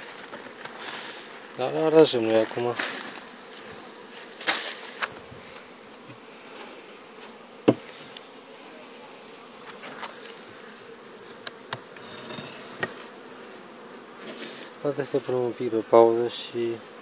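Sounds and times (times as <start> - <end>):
honeybees buzzing: 0.0 - 17.0
sharp knocks: 7.6 - 7.8.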